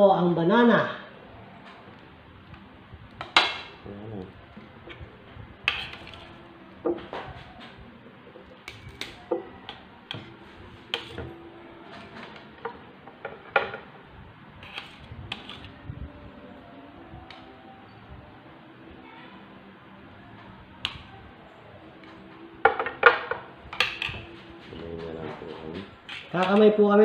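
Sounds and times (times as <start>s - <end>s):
cutlery clinking on plates: 5.6s - 6.3s, 8.6s - 13.9s, 22.6s - 24.7s.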